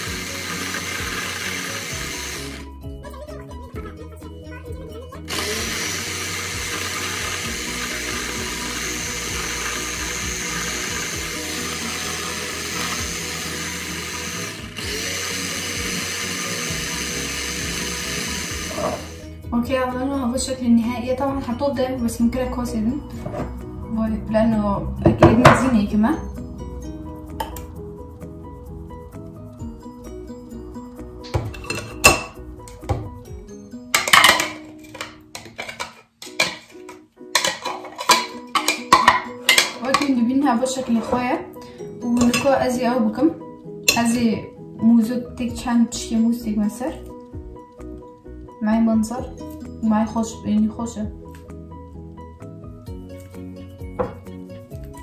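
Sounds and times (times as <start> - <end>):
electric blender running: 0.0 - 2.8, 5.3 - 19.4
background music: 0.0 - 55.0
metal spoon scraping plastic cup: 34.0 - 41.2.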